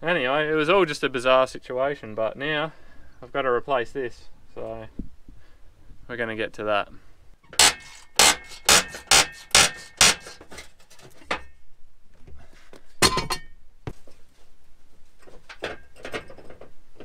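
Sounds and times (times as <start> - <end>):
metal scraping: 7.5 - 11.5.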